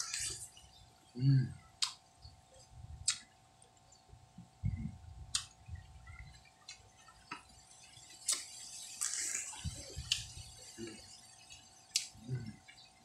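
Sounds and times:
person eating: 0.0 - 0.6, 8.0 - 11.2, 11.9 - 12.7
faint steady hum: 0.0 - 13.0
soft low thuds: 4.2 - 5.9.

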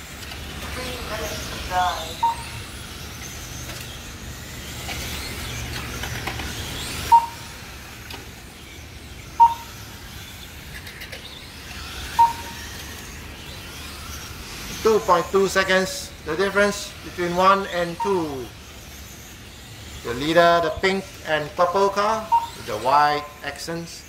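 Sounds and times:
toy car motors whining: 0.0 - 24.0
short electronic beeps: 2.1 - 2.6, 7.1 - 7.6, 9.4 - 9.8, 12.2 - 12.7, 17.4 - 18.5, 21.6 - 23.3.

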